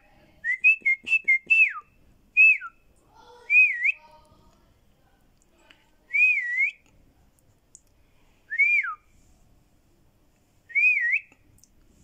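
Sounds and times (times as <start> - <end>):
short clear whistles: 0.5 - 2.8, 8.5 - 9.1, 10.7 - 11.4.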